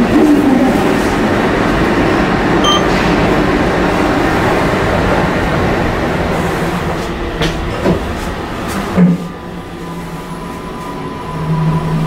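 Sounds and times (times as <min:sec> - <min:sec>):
train rumbling: 0:00.0 - 0:12.0
electronic elevator chime: 0:02.6 - 0:03.0.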